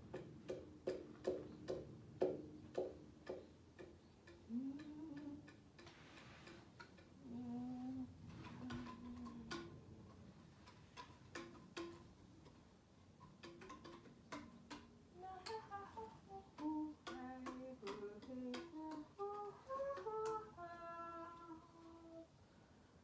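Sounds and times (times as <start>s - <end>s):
woman humming: 4.4s - 5.6s, 7.2s - 10.1s, 15.2s - 22.3s.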